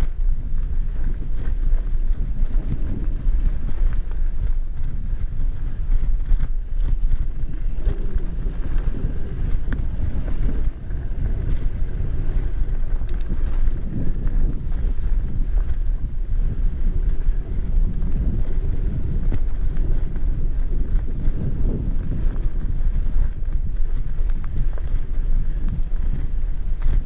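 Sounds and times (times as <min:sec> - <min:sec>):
wind buffeting microphone: 0:00.0 - 0:27.0
faint clicks: 0:13.0 - 0:13.7.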